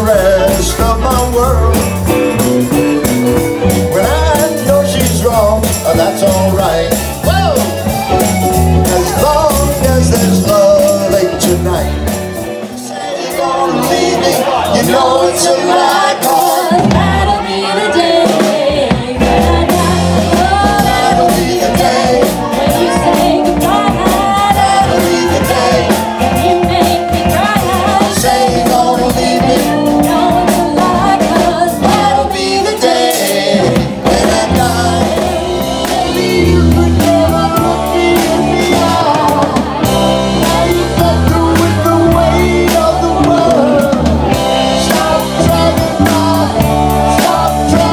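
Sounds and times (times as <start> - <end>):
live rock band playing: 0.0 - 47.9
woman singing: 14.8 - 33.4.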